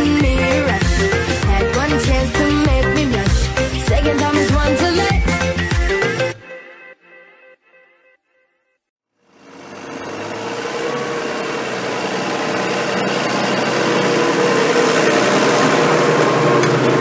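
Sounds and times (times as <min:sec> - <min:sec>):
tractor engine running: 0:09.3 - 0:17.0.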